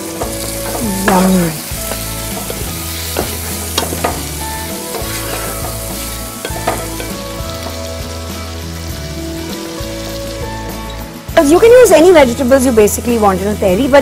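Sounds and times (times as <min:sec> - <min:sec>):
vegetables sizzling in oil: 0:00.0 - 0:14.0
wooden spatula scraping pot: 0:01.8 - 0:07.2.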